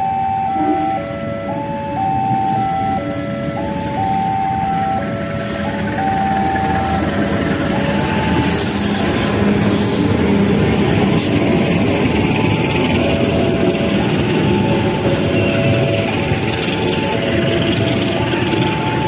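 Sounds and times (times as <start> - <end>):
level crossing warning chime: 0.0 - 9.6, 11.4 - 19.0
train rumbling past: 0.0 - 19.0
high wheel squeal: 5.2 - 10.3.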